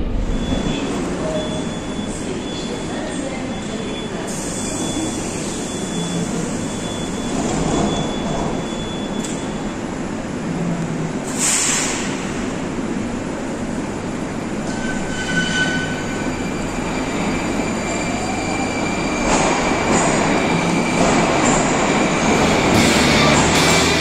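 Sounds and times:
train wheels on rails: 0:16.8 - 0:24.0
rising electric whine: 0:22.3 - 0:24.0.

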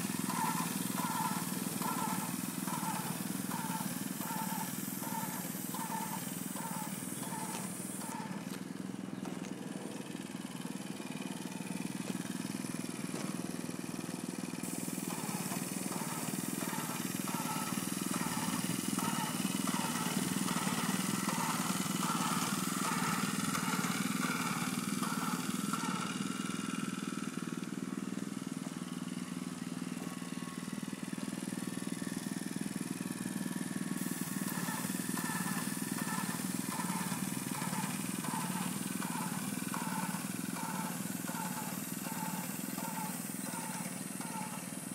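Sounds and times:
high hiss: 0:00.0 - 0:08.4
small gasoline engine running: 0:00.0 - 0:44.9.

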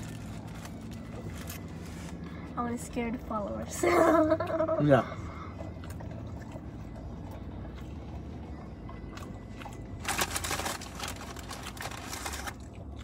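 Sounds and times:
paper wrapper crinkling: 0:00.0 - 0:02.3, 0:10.0 - 0:12.8
low hum inside car: 0:00.0 - 0:13.0.

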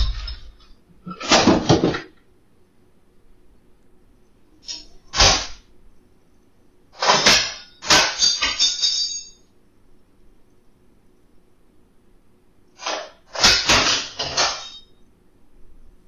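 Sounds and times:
cutlery clattering: 0:00.0 - 0:02.2, 0:07.0 - 0:09.4, 0:12.8 - 0:14.9
drawer jolted open: 0:01.1 - 0:02.1.

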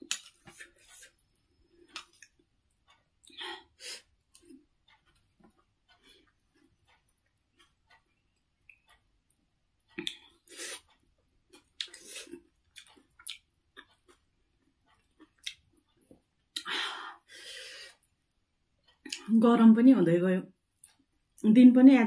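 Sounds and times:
wet chewing: 0:01.8 - 0:02.4, 0:04.3 - 0:08.9, 0:11.5 - 0:16.7
breathy bursts: 0:16.6 - 0:18.0.

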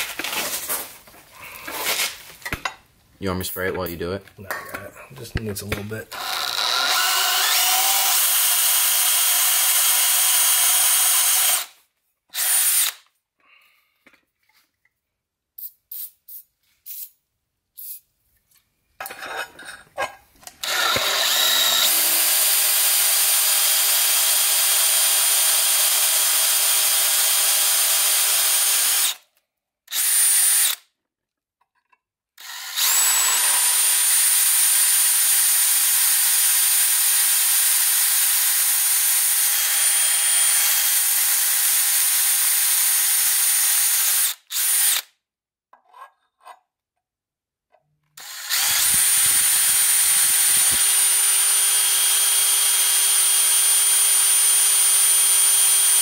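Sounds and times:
electric drill drilling steel: 0:06.1 - 0:13.0, 0:20.6 - 0:29.2, 0:29.9 - 0:30.8, 0:32.4 - 0:45.1, 0:48.2 - 0:56.0.

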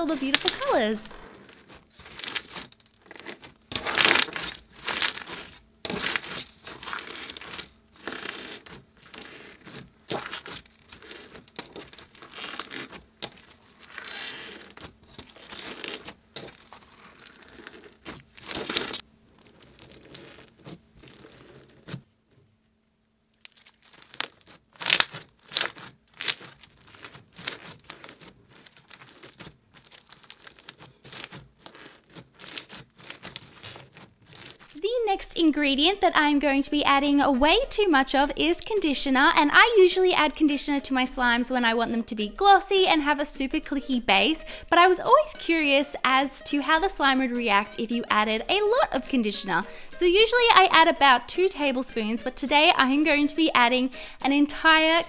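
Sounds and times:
putty with beads crackling: 0:00.0 - 0:22.0, 0:23.4 - 0:34.8.

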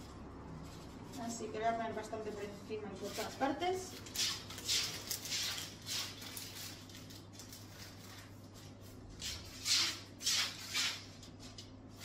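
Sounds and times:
soft rustles: 0:00.0 - 0:09.6.

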